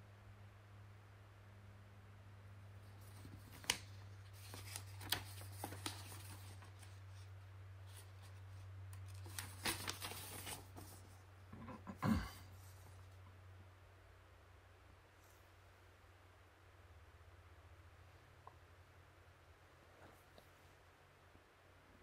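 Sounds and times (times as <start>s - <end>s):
paper pages rustling and turning: 2.8s - 11.2s.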